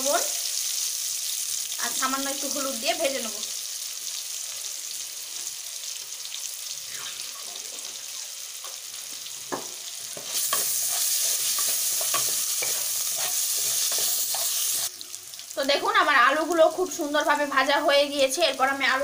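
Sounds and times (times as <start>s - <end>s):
potatoes sizzling in oil: 0.0s - 19.0s
spatula scraping a pan: 10.1s - 14.9s.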